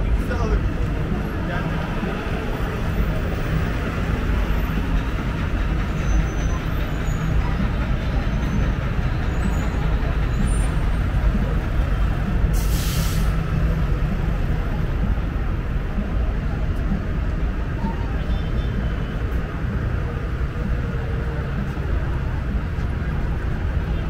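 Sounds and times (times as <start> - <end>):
traffic engine rumble: 0.0 - 24.0
brief hiss: 12.6 - 13.4.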